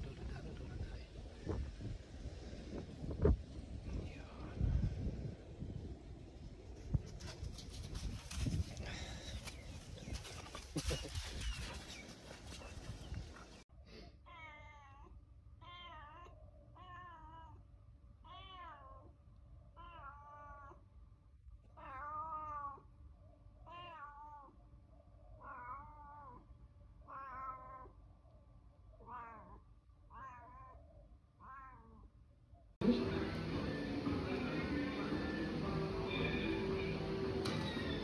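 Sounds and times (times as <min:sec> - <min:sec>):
cat meowing: 0:14.3 - 0:17.6, 0:18.2 - 0:19.1, 0:19.8 - 0:20.8, 0:21.8 - 0:22.9, 0:23.6 - 0:24.6, 0:25.4 - 0:28.0, 0:29.0 - 0:30.8, 0:31.4 - 0:32.1.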